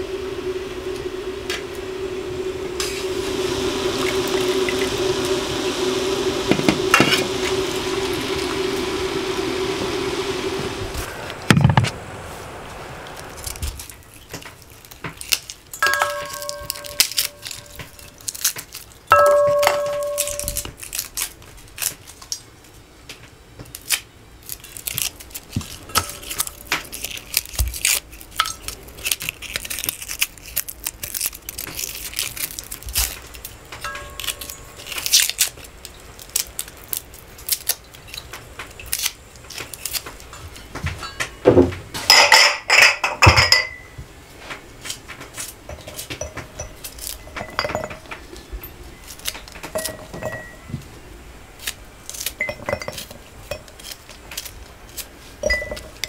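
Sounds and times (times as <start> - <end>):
garlic skins scraping and tearing: 13.1 - 22.6, 23.6 - 40.8, 44.5 - 46.2, 46.8 - 47.3, 48.2 - 50.0, 51.4 - 56.0
metal bowl ringing: 15.8 - 18.1, 19.1 - 20.7, 33.8 - 34.8, 41.0 - 41.4, 42.1 - 44.0, 45.7 - 48.1, 49.8 - 50.7, 52.4 - 53.7, 55.4 - 56.0
clattering: 45.1 - 50.8.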